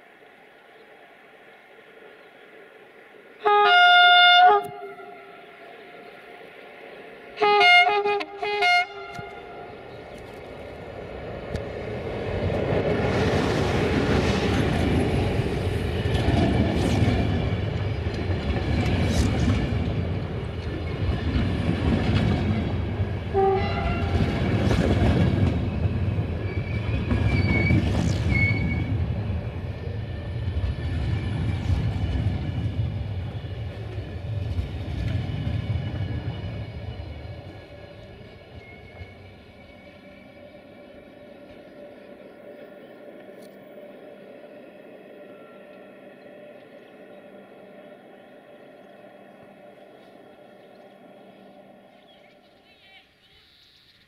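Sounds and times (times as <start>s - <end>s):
train wheels rumbling on rails: 7.4s - 44.5s
clickety-clack over rail joints: 8.4s - 29.0s, 30.6s - 39.2s
wheel squeals: 26.3s - 28.9s.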